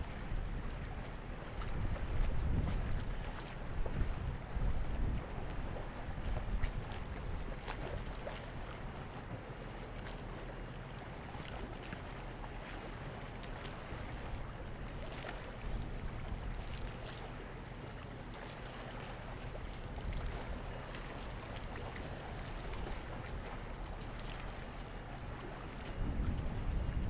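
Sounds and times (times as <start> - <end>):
wind buffeting microphone: 0.0 - 9.5, 13.8 - 17.6, 19.2 - 27.0.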